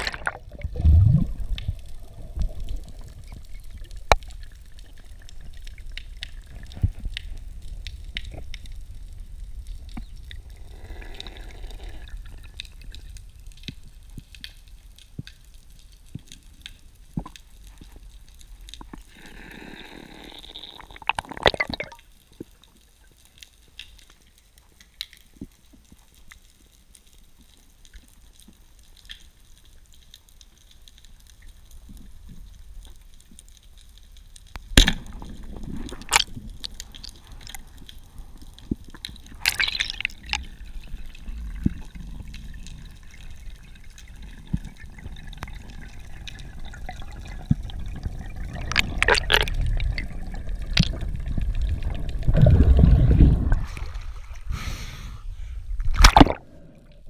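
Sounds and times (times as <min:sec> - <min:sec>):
sharp clicks underwater: 0:00.0 - 0:08.8, 0:20.4 - 0:54.0, 0:55.8 - 0:57.0
water swish: 0:00.0 - 0:13.3, 0:34.7 - 0:54.6, 0:55.6 - 0:57.0
underwater water noise: 0:00.0 - 0:57.0.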